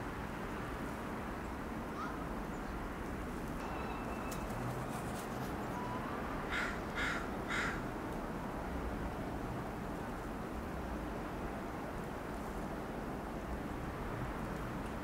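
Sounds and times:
crow cawing: 0:06.5 - 0:07.8.

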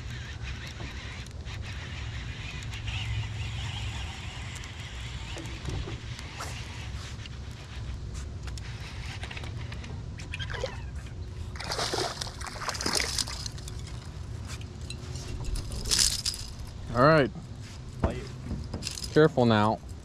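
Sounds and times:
fish splashing at water surface: 0:11.5 - 0:13.9.

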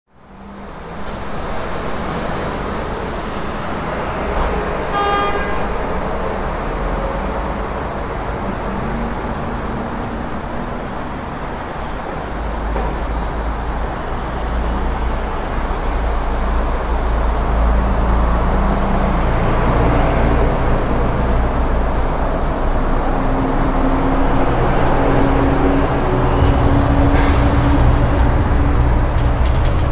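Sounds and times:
passing road traffic: 0:00.1 - 0:29.9
car horn toot: 0:04.9 - 0:05.7.

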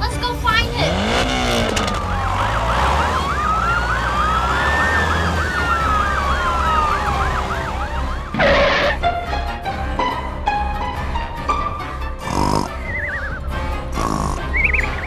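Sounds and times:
siren yelp and wail: 0:00.9 - 0:09.0.

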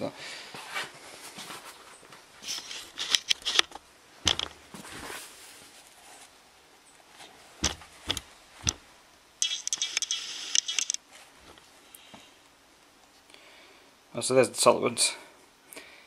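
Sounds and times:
metal tools clicking and knocking: 0:02.6 - 0:04.6, 0:09.4 - 0:11.0.

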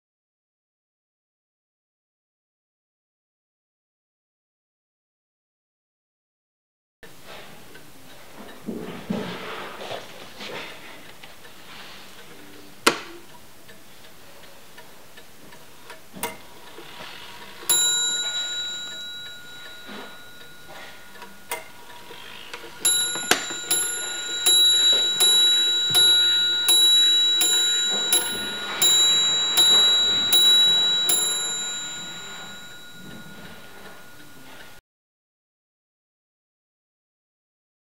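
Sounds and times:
clock hands clicking: 0:10.6 - 0:34.7
clock striking on its bell: 0:17.2 - 0:34.8.

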